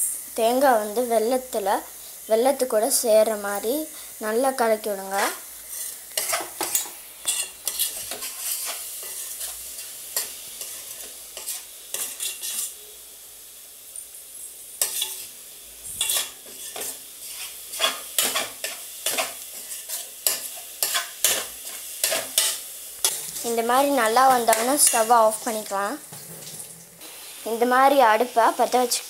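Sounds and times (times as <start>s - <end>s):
metal spoon scraping a steel pot: 10.6s - 12.8s, 16.0s - 23.5s.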